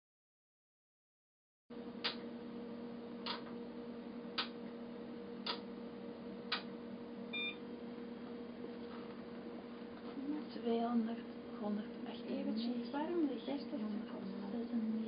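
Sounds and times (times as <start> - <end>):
electrical hum with hiss: 1.8 - 15.0
sharp clicks: 2.0 - 2.2, 3.2 - 3.5, 4.4 - 4.6, 5.4 - 5.7, 6.5 - 6.7
two-tone electronic beep: 7.4 - 7.6.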